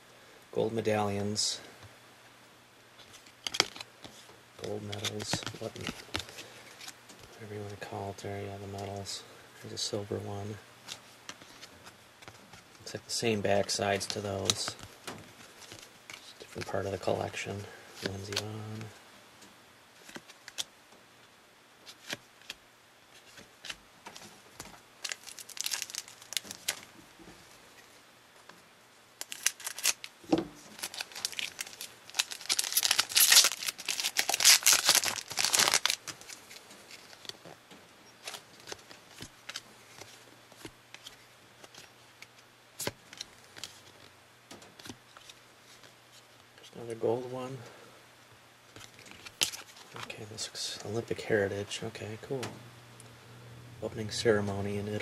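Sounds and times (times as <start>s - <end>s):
cards being handled: 3.0s - 7.8s, 10.8s - 18.9s, 20.0s - 20.7s, 21.8s - 27.0s, 29.2s - 37.6s, 38.2s - 44.1s, 44.8s - 46.3s, 48.7s - 51.0s
wrapper tearing and crinkling: 25.0s - 26.9s, 29.2s - 37.5s, 48.8s - 49.8s.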